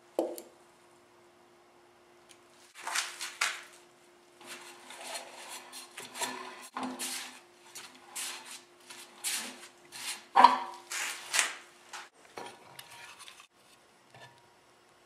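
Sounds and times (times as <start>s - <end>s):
hands rubbing and scraping wood: 4.4s - 11.6s.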